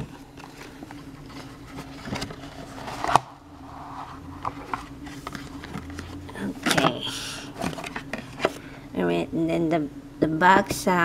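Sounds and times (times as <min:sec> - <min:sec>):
cardboard packaging handled: 0:00.0 - 0:03.4, 0:04.3 - 0:06.9
faint steady hum: 0:00.0 - 0:11.0.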